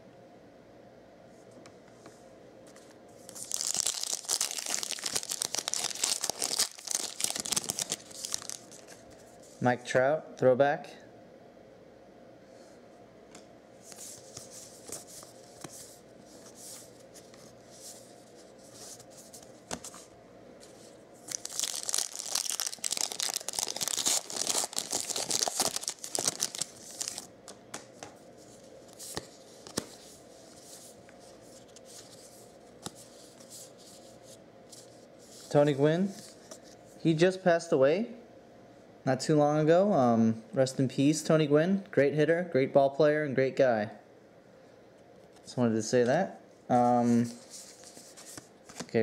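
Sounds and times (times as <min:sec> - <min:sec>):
cardboard cards rustling: 0:02.7 - 0:09.5, 0:13.9 - 0:35.5
foil wrapper tearing and crinkling: 0:03.3 - 0:09.0, 0:21.2 - 0:27.3.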